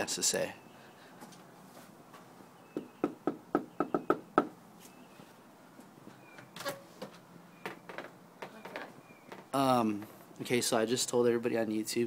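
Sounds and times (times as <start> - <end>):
knuckles knocking on door: 2.8 - 4.6.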